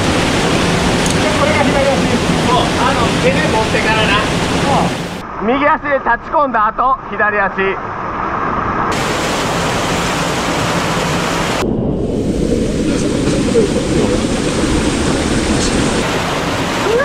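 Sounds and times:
waterfall rushing: 0:00.0 - 0:05.2, 0:08.9 - 0:11.7, 0:12.3 - 0:17.0.

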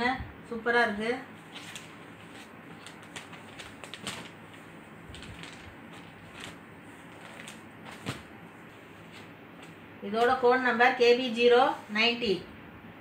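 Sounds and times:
fabric and paper rustling: 0:00.9 - 0:10.4.

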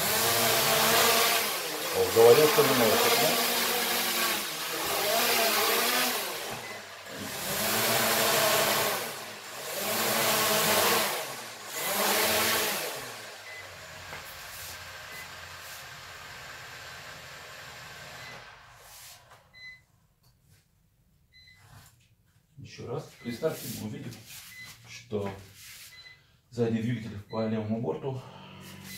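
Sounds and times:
drone motors whirring: 0:00.0 - 0:15.5.

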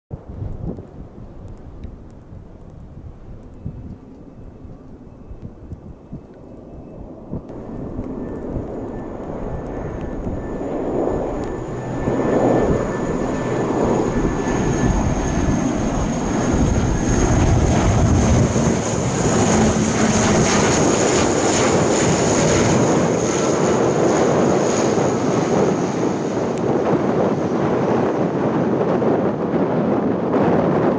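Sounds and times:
propeller aircraft drone: 0:00.2 - 0:30.9
turbine whine: 0:07.0 - 0:30.9.

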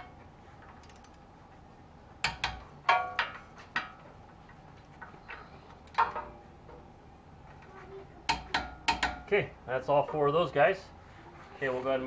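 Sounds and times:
ratchet metal clicks and clinks: 0:00.7 - 0:01.2.

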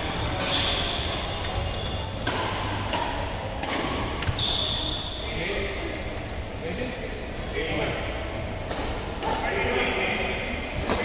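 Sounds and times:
rackets hitting shuttlecock: 0:00.2 - 0:04.6, 0:08.7 - 0:09.7, 0:10.8 - 0:11.0.

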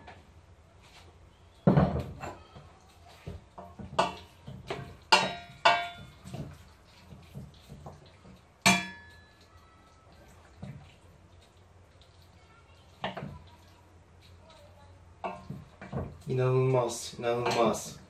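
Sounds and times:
wooden spoon scraping in pot: 0:02.1 - 0:08.4.

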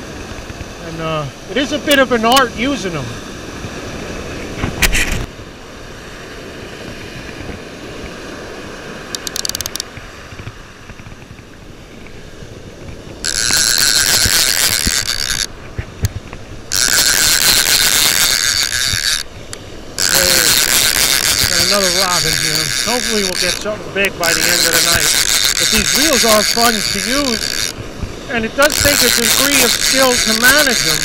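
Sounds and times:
fishing reel clicker buzzing: 0:09.1 - 0:09.9, 0:13.2 - 0:15.5, 0:16.7 - 0:31.0.

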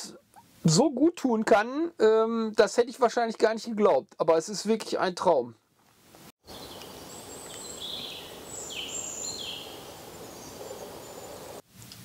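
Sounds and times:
steady background hiss: 0:05.8 - 0:12.0
songbird calls: 0:06.5 - 0:11.6.

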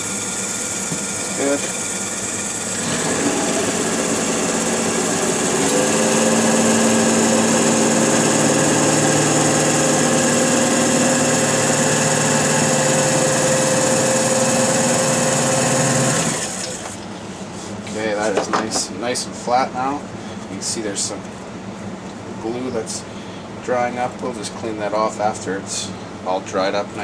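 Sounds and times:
lathe motor humming: 0:00.0 - 0:17.0.

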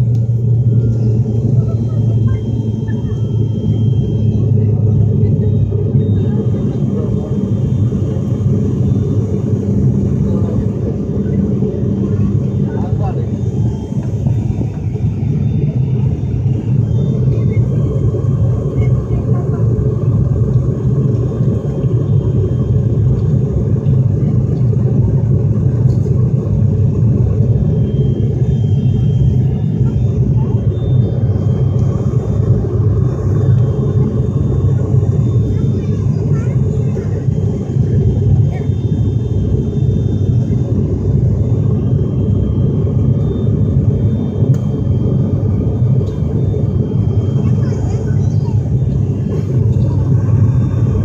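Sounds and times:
airliner engine and propeller drone: 0:00.0 - 0:51.0
faint high whine: 0:00.0 - 0:51.0.

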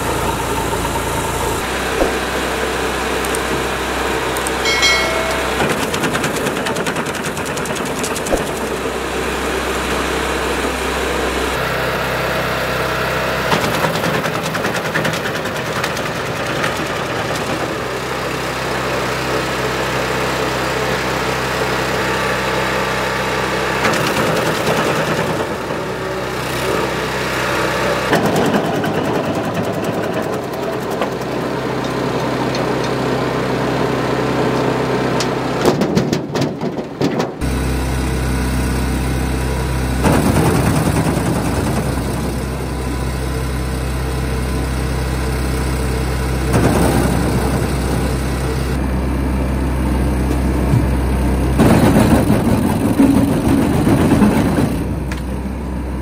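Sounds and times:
wood chipper engine humming: 0:00.0 - 0:56.0.

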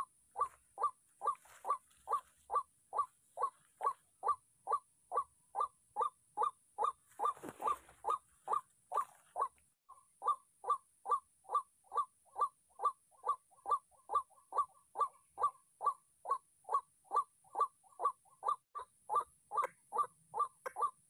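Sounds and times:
waterhen calling: 0:00.0 - 0:05.7.

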